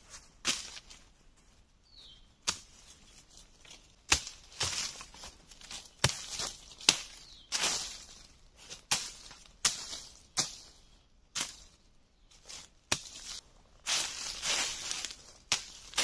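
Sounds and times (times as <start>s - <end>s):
dry leaves rustling: 0.0s - 16.0s
machete chopping brush: 2.4s - 2.7s, 4.1s - 5.1s, 6.0s - 8.1s, 8.8s - 10.6s, 11.4s - 11.7s, 12.9s - 16.0s.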